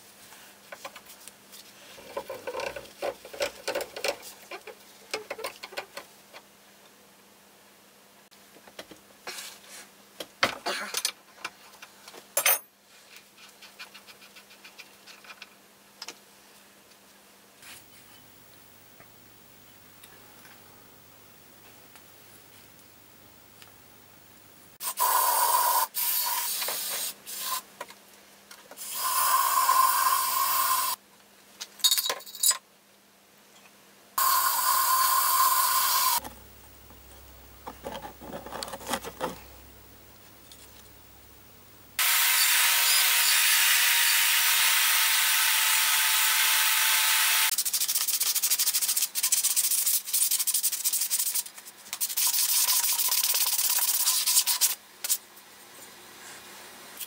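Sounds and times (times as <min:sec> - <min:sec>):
sanding on metal: 0:47.6 - 0:54.8.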